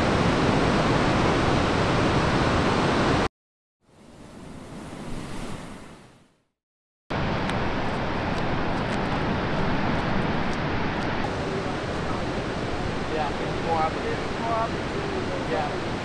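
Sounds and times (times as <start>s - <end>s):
ocean surf breaking: 7.1s - 16.0s.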